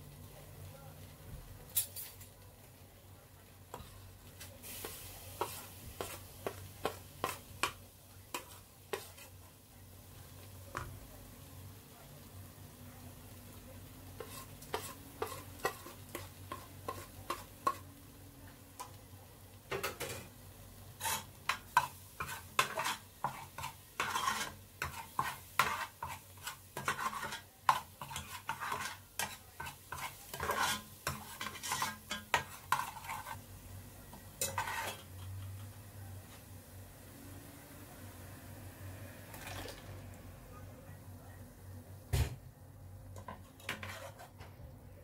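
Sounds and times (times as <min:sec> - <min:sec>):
spices frying with light sizzle: 0:00.0 - 0:44.4
metal spoon scraping a pot: 0:14.2 - 0:17.8, 0:21.0 - 0:33.4, 0:34.4 - 0:35.4, 0:43.2 - 0:44.4.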